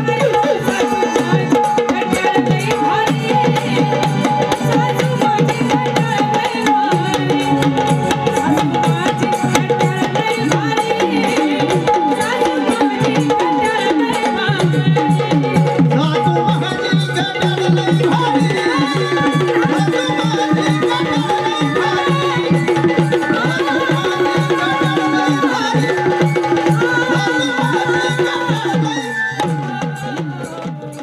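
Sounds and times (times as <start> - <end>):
fast hand-drum rhythm: 0.0 - 31.0
woman singing into a microphone: 0.0 - 31.0.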